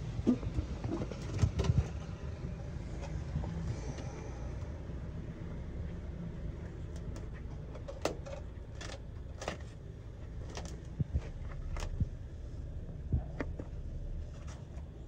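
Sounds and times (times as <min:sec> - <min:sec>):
scrapes and clicks in manhole: 0:00.1 - 0:04.7, 0:06.6 - 0:12.2, 0:13.1 - 0:15.0
steady low rumble: 0:08.7 - 0:15.0.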